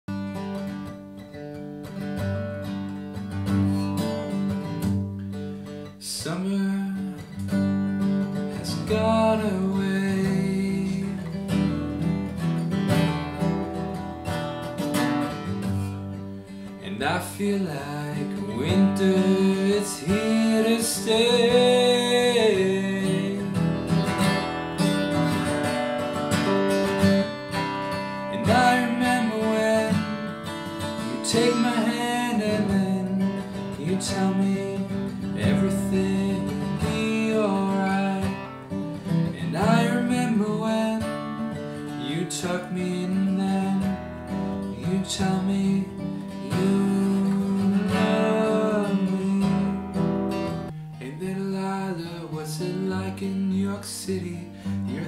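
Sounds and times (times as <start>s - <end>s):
acoustic guitar strummed chords: 0.1s - 55.0s.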